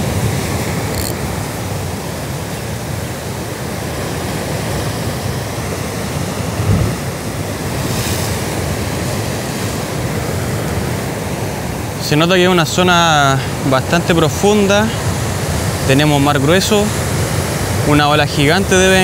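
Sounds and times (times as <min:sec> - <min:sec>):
wind on microphone: 0:00.0 - 0:11.2
surf breaking against rocks: 0:06.0 - 0:11.0
low thump: 0:06.6 - 0:07.0.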